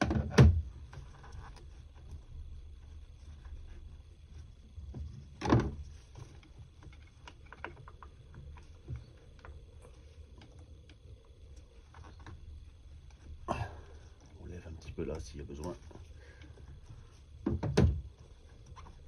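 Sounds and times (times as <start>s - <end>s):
low background hum: 0.0s - 19.0s
small plastic clicks and knocks: 4.8s - 12.5s.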